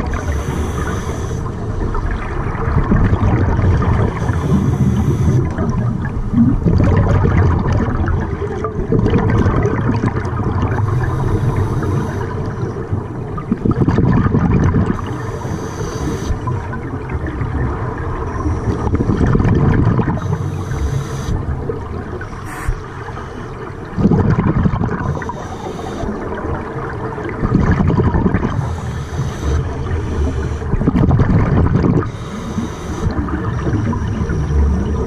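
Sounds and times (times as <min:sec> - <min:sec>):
bubbling regulator exhalations: 0:00.0 - 0:35.0
regulator hiss: 0:00.2 - 0:01.5, 0:04.2 - 0:05.5, 0:15.1 - 0:16.4, 0:20.2 - 0:21.4, 0:25.0 - 0:26.2.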